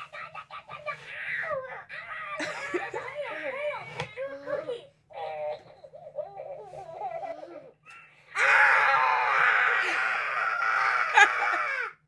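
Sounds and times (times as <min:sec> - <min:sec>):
child laughing: 0:00.0 - 0:03.4.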